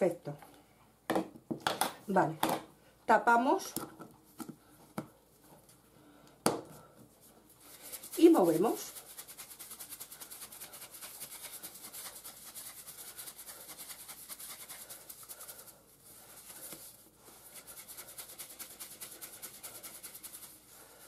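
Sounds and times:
breadcrumbs shaken in plastic container: 0:07.7 - 0:20.9.

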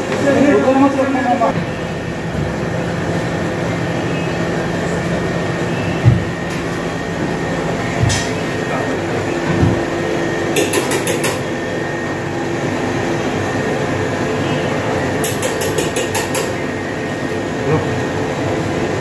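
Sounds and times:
kitchen machinery drone: 0:00.0 - 0:19.0.

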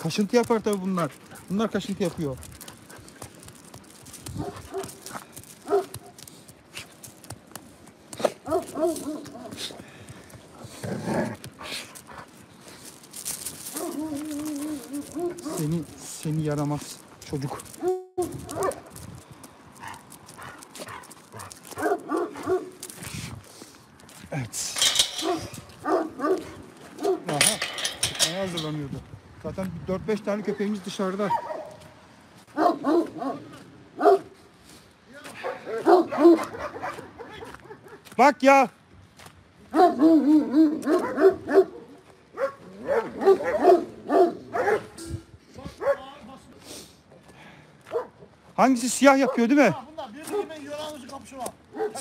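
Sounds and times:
dogs barking: 0:04.3 - 0:06.2, 0:08.2 - 0:09.8, 0:13.7 - 0:16.0, 0:17.4 - 0:19.0, 0:19.8 - 0:22.8, 0:24.9 - 0:28.2, 0:30.5 - 0:31.9, 0:32.5 - 0:34.4, 0:35.3 - 0:38.1, 0:39.7 - 0:45.2, 0:45.8 - 0:46.1, 0:47.9 - 0:48.3, 0:49.1 - 0:49.6, 0:50.2 - 0:50.6, 0:51.7 - 0:52.0
dogs yipping and whining: 0:13.7 - 0:15.6.

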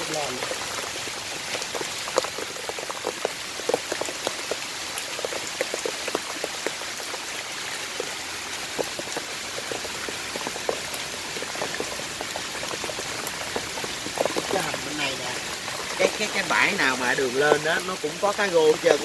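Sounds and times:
heavy rain falling: 0:00.0 - 0:19.0.

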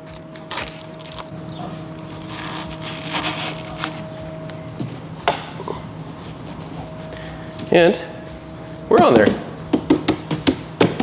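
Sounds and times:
steady low hum: 0:00.0 - 0:11.0
plastic part rustling and scraping: 0:02.2 - 0:04.0.

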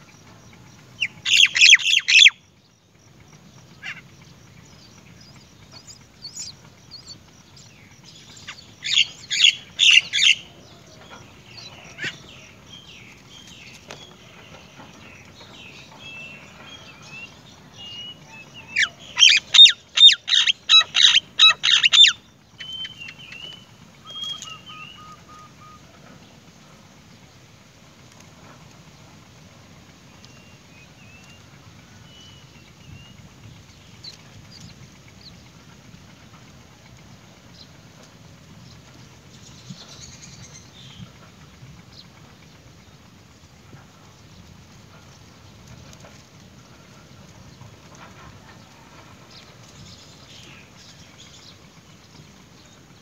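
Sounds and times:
nestlings shrill begging chirps: 0:00.9 - 0:02.5, 0:03.7 - 0:14.7, 0:15.4 - 0:25.8.

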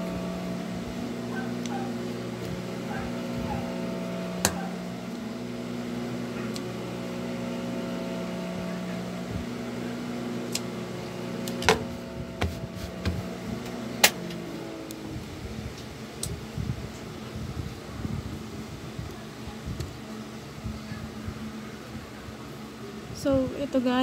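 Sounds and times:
electric motor hum: 0:00.0 - 0:18.7.

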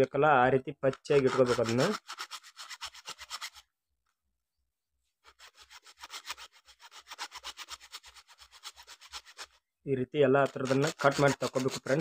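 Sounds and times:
hand saw cutting hard plastic: 0:00.9 - 0:03.6, 0:05.3 - 0:09.6, 0:10.4 - 0:12.0.

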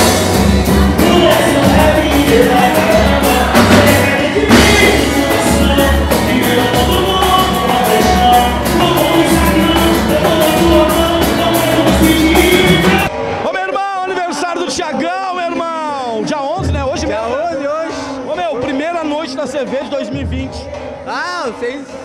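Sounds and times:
bass guitar: 0:00.0 - 0:13.1
person singing: 0:00.0 - 0:13.1
percussion: 0:00.0 - 0:22.0.

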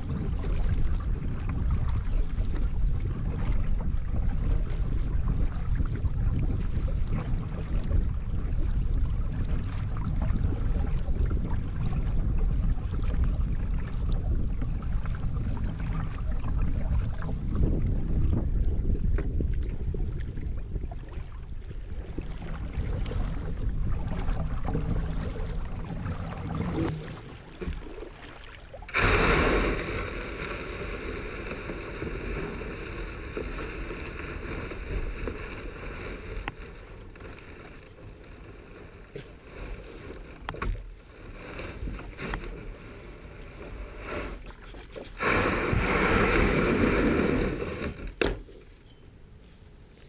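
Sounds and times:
water sloshing around hull: 0:00.0 - 0:50.0
hull scraping over gravel: 0:28.9 - 0:48.7.

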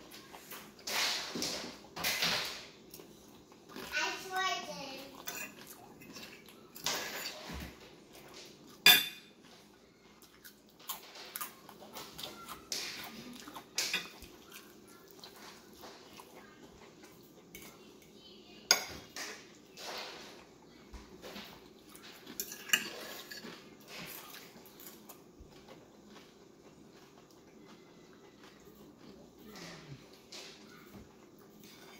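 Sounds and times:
fork clinking on ceramic plate: 0:08.8 - 0:09.3.

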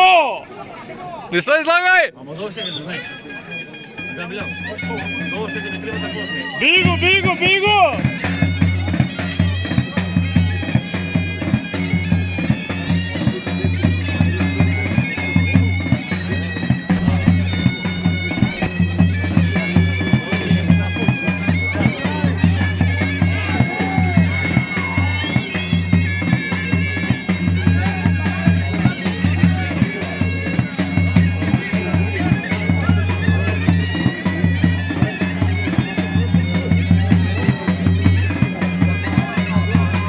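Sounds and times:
shrill reed instrument melody: 0:03.0 - 0:34.5
drum beat: 0:06.6 - 0:40.0.

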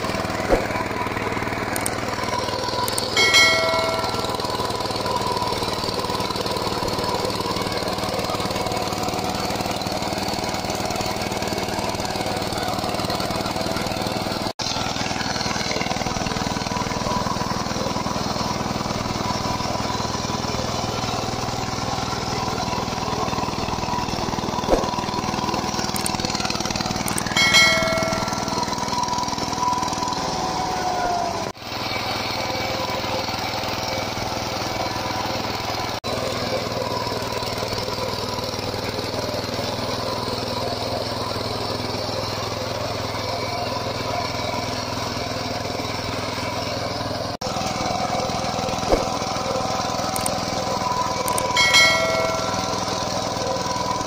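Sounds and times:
diesel engine running under load: 0:00.0 - 0:54.0
rotary tiller churning soil: 0:00.0 - 0:54.0
short chime: 0:03.2 - 0:05.4, 0:27.4 - 0:29.2, 0:51.6 - 0:53.4.

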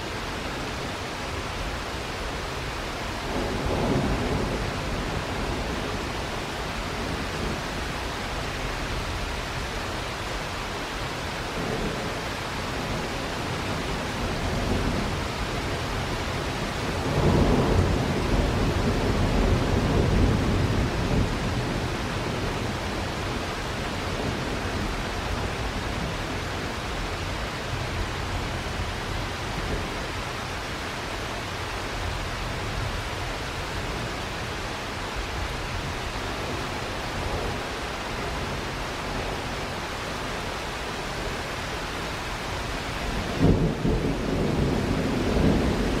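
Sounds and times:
steady rain: 0:00.0 - 0:46.0
thunder rumbling: 0:42.3 - 0:46.0.

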